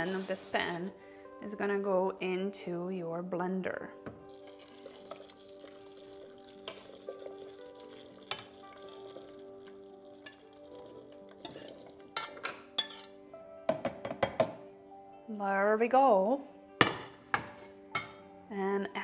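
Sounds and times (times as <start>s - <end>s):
metal ladle scraping a pan: 0.0s - 1.0s, 6.6s - 9.2s, 11.4s - 13.2s
soup pouring: 4.2s - 13.1s.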